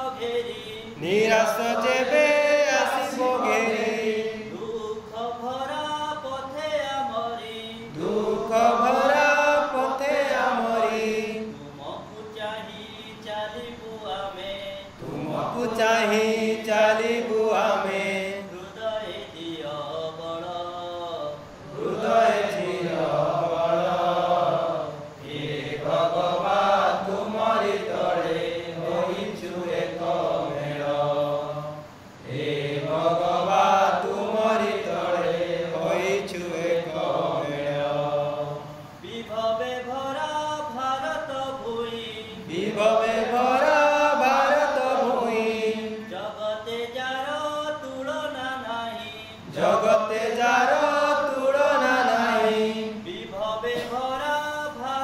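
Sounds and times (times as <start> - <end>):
man singing: 0.0 - 21.6, 38.9 - 55.0.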